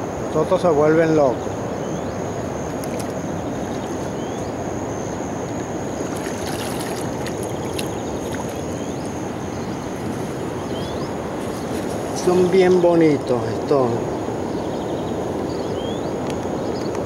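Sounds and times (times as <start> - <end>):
river running over gravel: 5.4 - 14.0.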